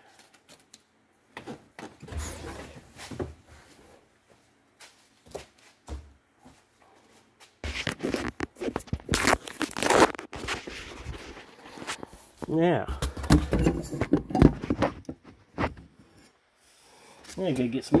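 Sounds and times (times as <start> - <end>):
knocks and rustles of handling: 0.0 - 16.2
phone rubbing and crackling: 7.6 - 12.2.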